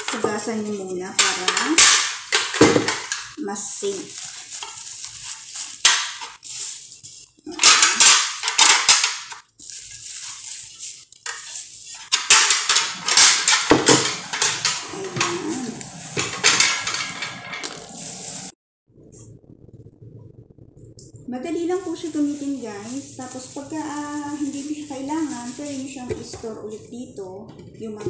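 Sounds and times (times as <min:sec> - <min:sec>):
plastic packaging rustling: 0:00.0 - 0:18.6, 0:21.6 - 0:26.6
metal plates clattering: 0:01.2 - 0:03.4, 0:07.5 - 0:09.4, 0:12.0 - 0:17.9.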